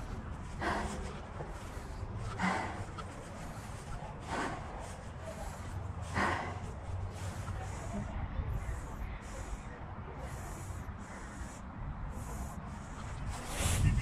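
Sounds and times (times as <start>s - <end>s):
cyclist breathing hard: 0.0s - 14.0s
steady low rumble: 0.0s - 14.0s.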